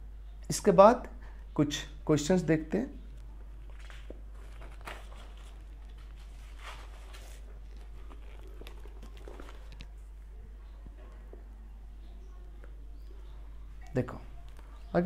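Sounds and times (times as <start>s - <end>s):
steady low hum: 0.0s - 15.0s
notebook page rustling: 3.5s - 10.1s.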